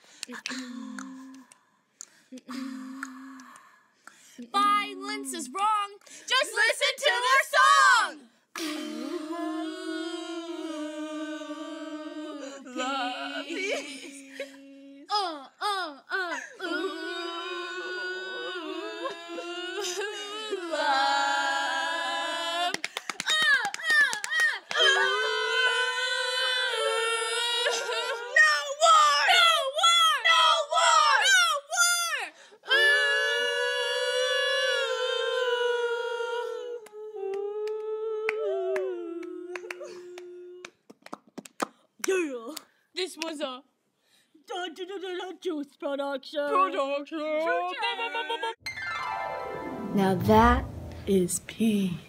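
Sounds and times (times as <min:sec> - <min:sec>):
women humming: 0:08.8 - 0:21.7
person singing long held notes: 0:16.6 - 0:22.8.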